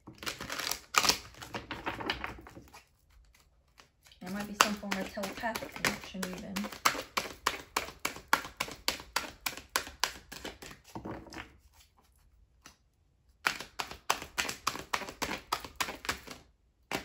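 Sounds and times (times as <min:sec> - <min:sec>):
cards being shuffled: 0:00.1 - 0:12.8, 0:13.4 - 0:17.0.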